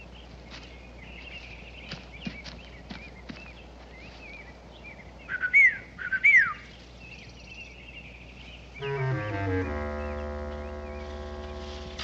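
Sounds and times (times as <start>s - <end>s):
bird chirps: 0.0s - 12.0s.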